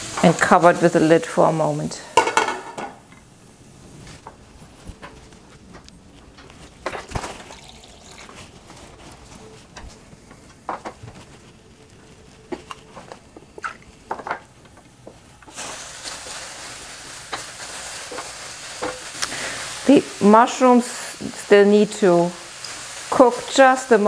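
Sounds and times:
mushrooms sizzling in a pan: 0.0s - 2.5s, 15.5s - 24.0s.

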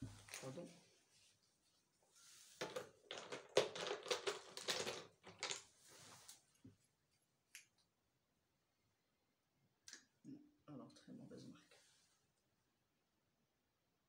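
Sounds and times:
small hard objects clattering: 2.6s - 5.8s.

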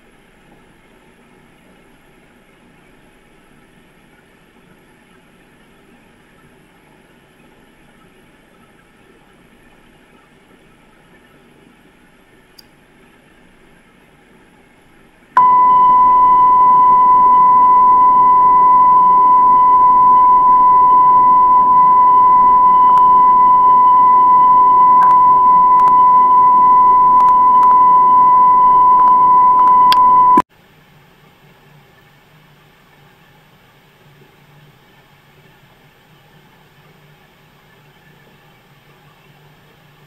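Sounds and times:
faint tape hiss: 15.4s - 30.4s
high electronic test tone: 15.4s - 30.4s.

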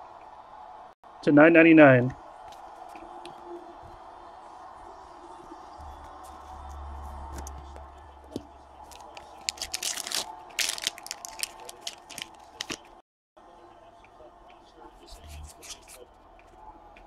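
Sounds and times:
wrapper tearing and crinkling: 8.9s - 12.9s.

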